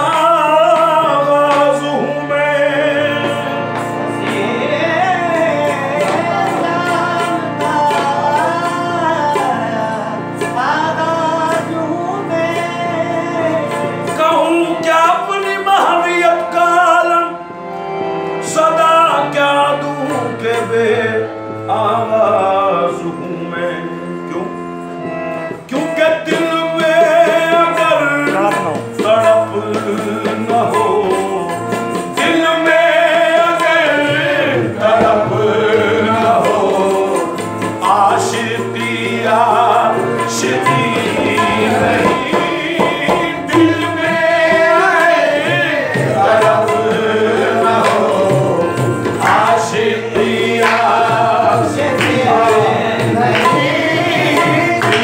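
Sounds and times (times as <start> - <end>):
man singing: 0.0 - 17.5, 18.4 - 24.8, 25.5 - 55.0
tabla: 0.0 - 23.0, 23.6 - 55.0
harmonium: 0.0 - 55.0
group voices singing: 32.2 - 55.0
hand-clapping: 51.9 - 52.3, 53.2 - 55.0.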